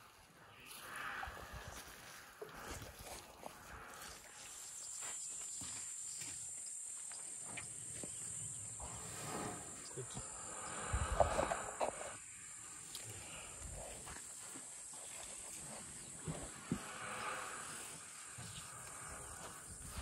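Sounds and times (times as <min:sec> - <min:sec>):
high-pitched insect buzz: 0:00.5 - 0:20.0
elephant trunk rumbling against microphone: 0:08.8 - 0:12.2, 0:16.0 - 0:20.0.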